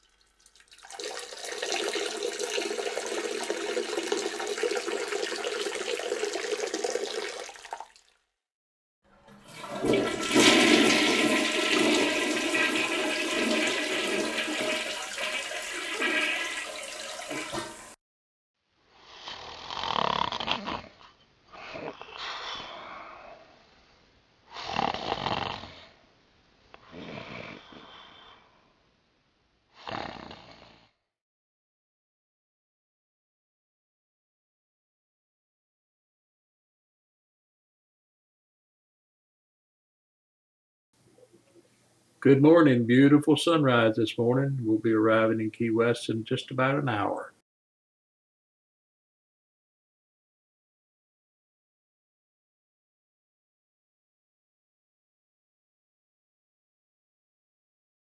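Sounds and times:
toilet flushing: 0.0s - 8.0s, 9.1s - 18.0s
water running from a tap: 0.0s - 8.2s, 9.3s - 18.0s.

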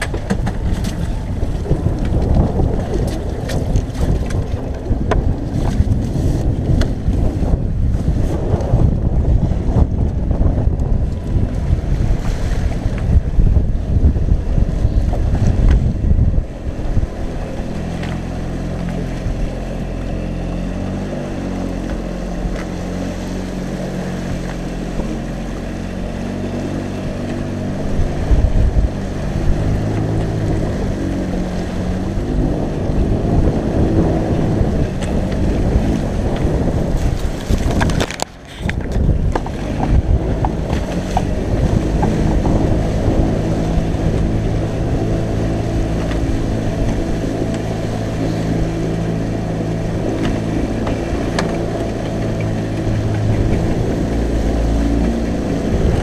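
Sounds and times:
hull knocking on waves: 0.0s - 56.0s
outboard motor running: 0.0s - 56.0s
wind buffeting microphone: 0.0s - 56.0s.

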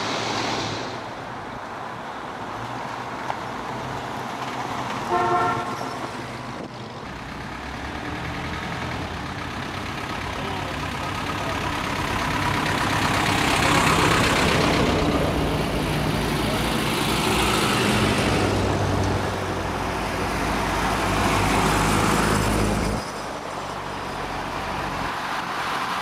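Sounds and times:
car engine and tyre noise: 0.0s - 26.0s
cars driving past: 0.0s - 26.0s
car horn toot: 5.1s - 6.1s.

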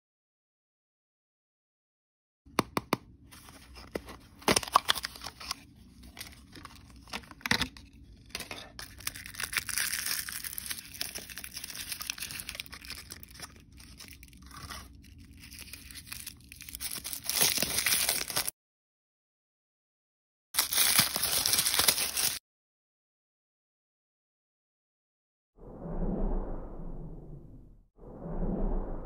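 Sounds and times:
wrapper crinkling: 3.7s - 18.5s, 20.6s - 22.4s
plastic film tearing and rustling: 4.4s - 18.5s, 20.6s - 22.4s.

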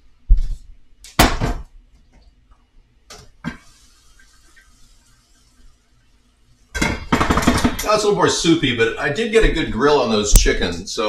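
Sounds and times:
water pouring into pot: 3.5s - 5.9s.

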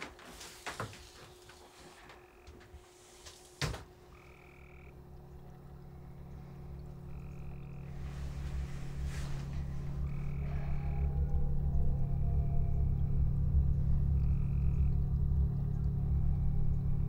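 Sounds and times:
frogs trilling: 1.1s - 2.8s, 3.6s - 17.0s
low drone: 4.0s - 17.0s.

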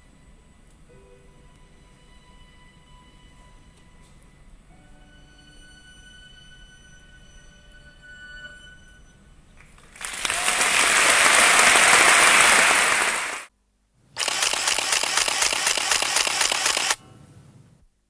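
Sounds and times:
audience applauding: 9.6s - 13.5s.

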